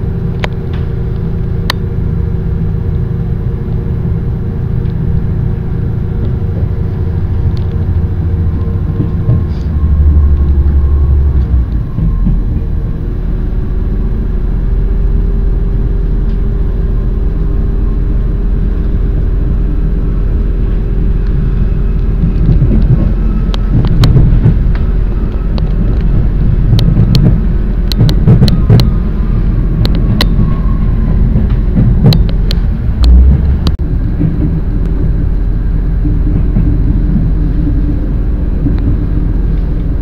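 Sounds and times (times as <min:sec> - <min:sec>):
train rumbling: 0:00.0 - 0:40.0
wheels clacking over rail joints: 0:20.6 - 0:40.0.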